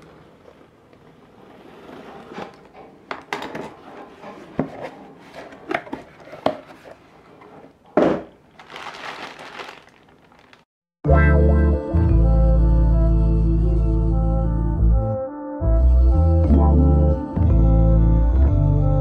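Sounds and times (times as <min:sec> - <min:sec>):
plastic packaging rustling: 0:08.4 - 0:10.7.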